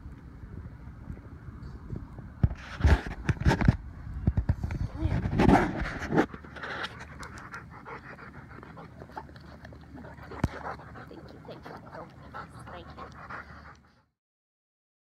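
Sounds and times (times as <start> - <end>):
dog panting: 6.2 - 14.1.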